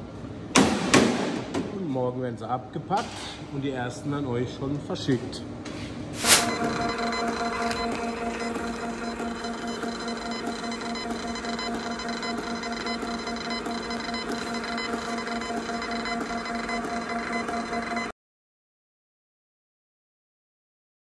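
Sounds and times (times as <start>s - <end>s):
label printer motor whine: 6.4s - 18.1s.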